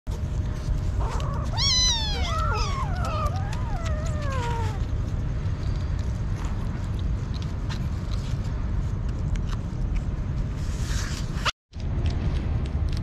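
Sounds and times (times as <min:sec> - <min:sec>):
kittens eating wet food: 0:00.1 - 0:10.6, 0:11.7 - 0:13.0
steady low rumble: 0:00.1 - 0:13.0
kittens meowing: 0:00.9 - 0:05.0.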